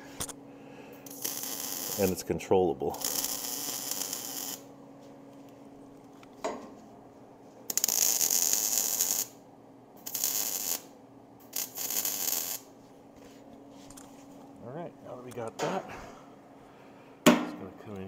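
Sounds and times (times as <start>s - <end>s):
welding arc crackling: 1.0s - 4.7s, 7.7s - 9.4s, 10.0s - 12.7s
single knock: 17.3s - 17.6s.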